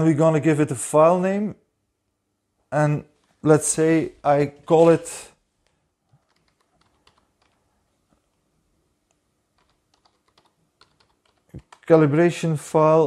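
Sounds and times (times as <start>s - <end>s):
faint keyboard typing: 5.6s - 8.4s, 9.1s - 12.0s.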